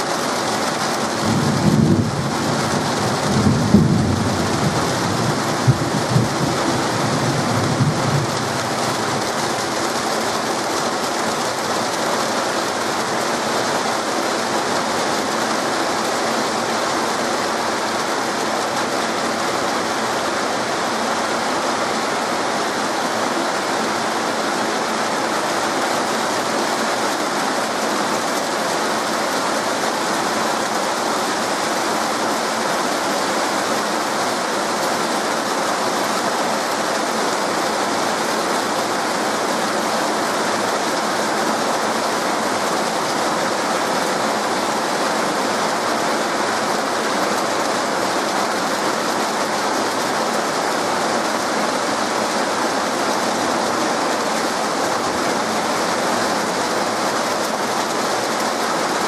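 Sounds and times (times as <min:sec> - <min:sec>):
heavy rain pouring: 0:00.0 - 0:59.0
thunder rumble: 0:01.2 - 0:09.4.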